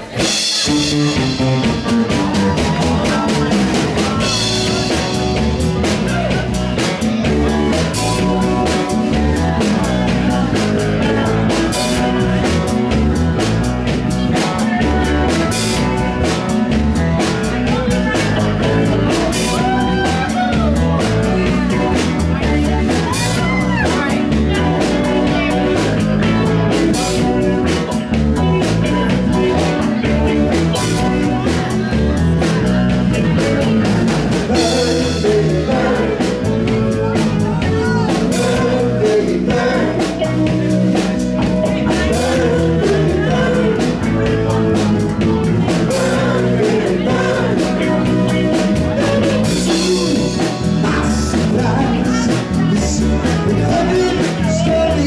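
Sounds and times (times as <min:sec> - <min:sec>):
drum kit: 0:00.0 - 0:55.0
electric guitar: 0:00.0 - 0:55.0
person singing: 0:00.0 - 0:55.0.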